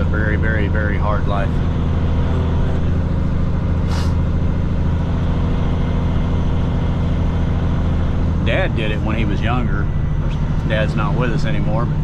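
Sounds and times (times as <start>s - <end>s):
diesel truck engine running: 0.0s - 12.0s.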